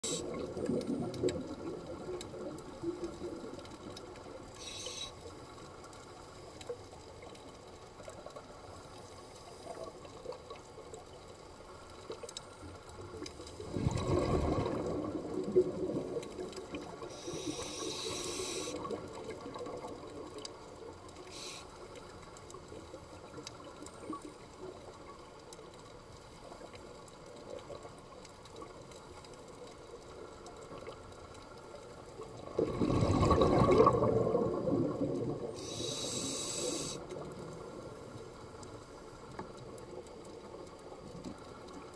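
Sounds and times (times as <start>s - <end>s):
exhaled bubbles gushing: 0.0s - 4.4s, 13.6s - 20.5s, 32.2s - 38.0s
diver inhaling through regulator: 4.6s - 5.2s, 17.1s - 18.9s, 35.6s - 37.0s.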